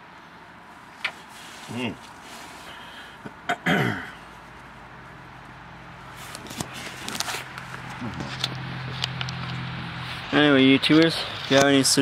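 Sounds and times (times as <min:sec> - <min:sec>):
camera handling clicks and bumps: 0:06.3 - 0:09.7.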